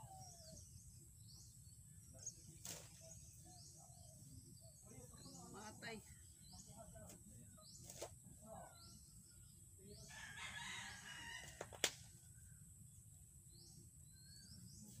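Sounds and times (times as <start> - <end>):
distant rooster crowing: 10.0 - 11.8.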